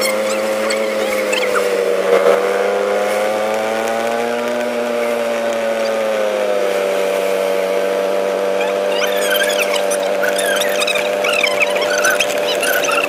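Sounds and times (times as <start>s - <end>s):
short high squeaks: 0.0s - 1.8s, 8.6s - 13.0s
vehicle engine droning: 0.0s - 13.0s.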